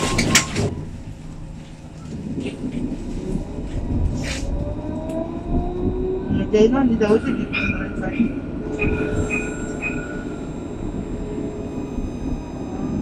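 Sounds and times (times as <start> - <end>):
tram running rumble: 0.0 - 13.0
traction motor whine: 8.5 - 13.0.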